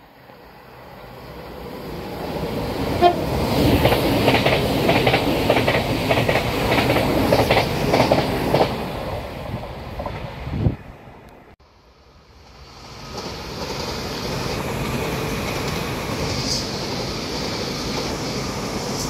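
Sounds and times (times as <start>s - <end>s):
train horn toot: 3.0s - 3.3s
train wheels clattering over rail joints: 3.4s - 8.8s.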